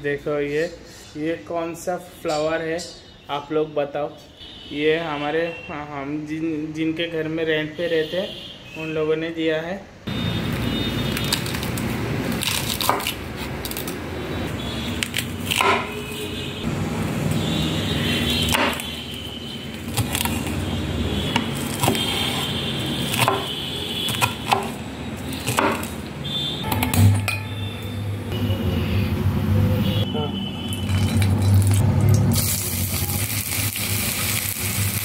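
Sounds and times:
knife chopping on wooden board: 0:15.5 - 0:16.0, 0:18.4 - 0:18.8, 0:19.9 - 0:20.5, 0:21.3 - 0:23.5, 0:24.1 - 0:24.8, 0:25.4 - 0:26.0.

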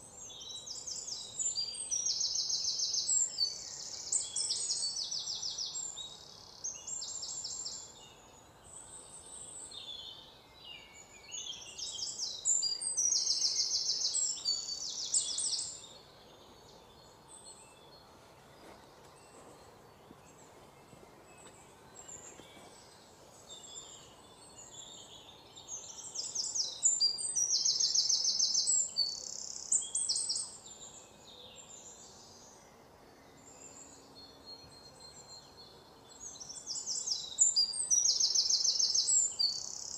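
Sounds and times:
faint steady hiss: 0:00.0 - 0:39.9
small birds chirping: 0:00.0 - 0:39.9.

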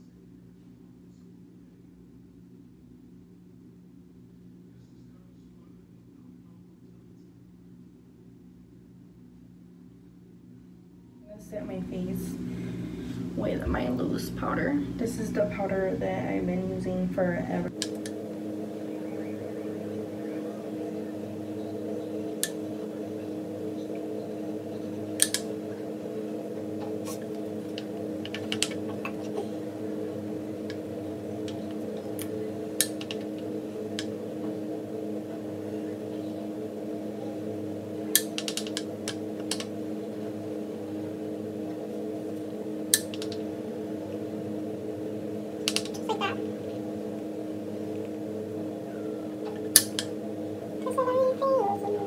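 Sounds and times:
steady low hum: 0:00.0 - 0:52.0.

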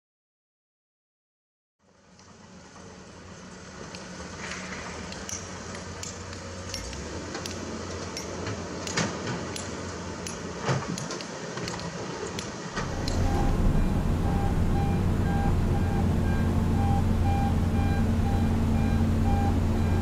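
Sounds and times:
excavator diesel engine running: 0:12.8 - 0:20.0.

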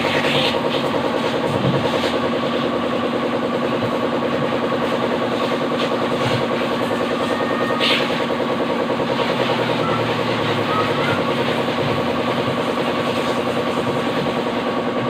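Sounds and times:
pressure washer pump humming: 0:00.0 - 0:15.0
water jet hissing: 0:04.8 - 0:08.4.

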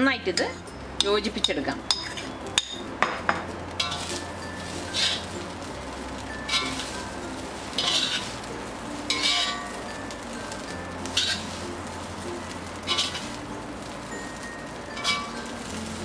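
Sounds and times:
steady sizzle: 0:00.0 - 0:16.0
metal spatula scraping pan: 0:00.4 - 0:02.8, 0:03.8 - 0:05.4, 0:06.4 - 0:07.1, 0:07.7 - 0:08.4, 0:09.0 - 0:09.8, 0:11.0 - 0:11.7, 0:12.7 - 0:13.4, 0:14.9 - 0:15.5.

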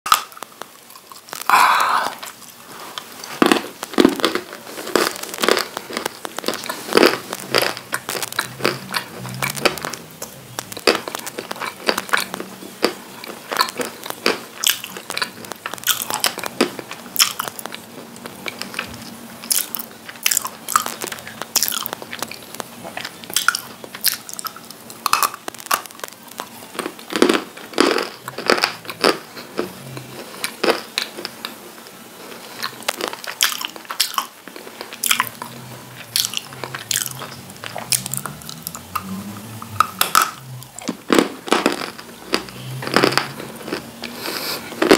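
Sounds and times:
chewing and mouth sounds: 0:00.1 - 0:31.6, 0:32.3 - 0:44.9
crunching hard clay: 0:03.3 - 0:17.8.

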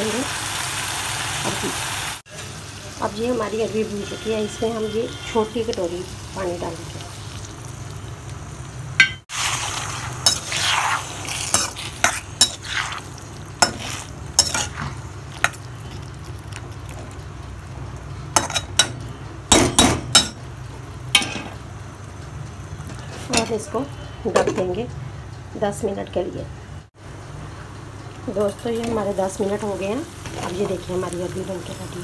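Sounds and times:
water sizzling in hot pan: 0:00.0 - 0:17.8, 0:28.7 - 0:32.0
metal spoon scraping iron pot: 0:10.2 - 0:13.0, 0:13.6 - 0:15.6.

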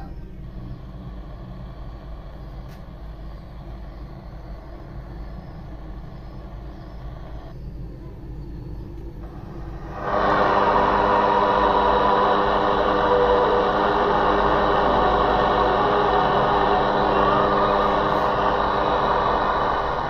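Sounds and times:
low hum: 0:00.0 - 0:20.0
radio static hiss: 0:05.4 - 0:07.5.

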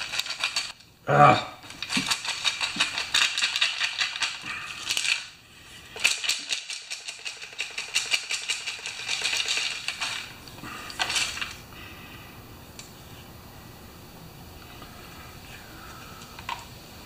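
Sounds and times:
chainsaw rattling when shaken: 0:06.0 - 0:10.3.

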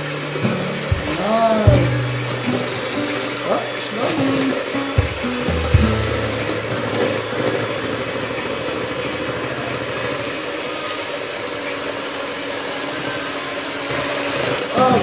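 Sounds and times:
knock: 0:00.9 - 0:03.2, 0:05.0 - 0:06.6
electric hand mixer whirring: 0:02.8 - 0:04.7, 0:06.4 - 0:14.7.

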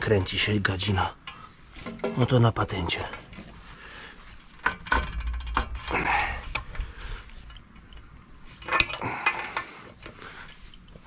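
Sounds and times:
metal scraping: 0:04.3 - 0:10.1.

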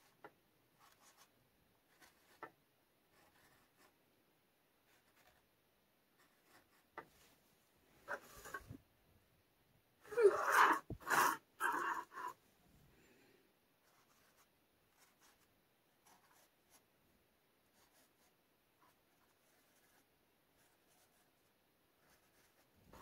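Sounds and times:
marker scratching on canvas: 0:00.0 - 0:01.3, 0:01.9 - 0:04.0, 0:04.9 - 0:05.5, 0:06.2 - 0:07.3, 0:08.0 - 0:08.8, 0:13.8 - 0:16.8, 0:17.6 - 0:23.0
person sneezing: 0:10.1 - 0:12.3.

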